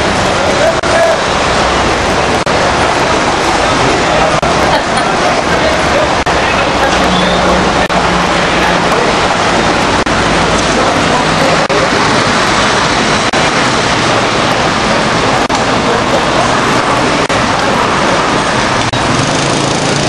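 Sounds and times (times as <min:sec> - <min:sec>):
engine hum: 0:00.0 - 0:20.0
street traffic noise: 0:00.0 - 0:20.0.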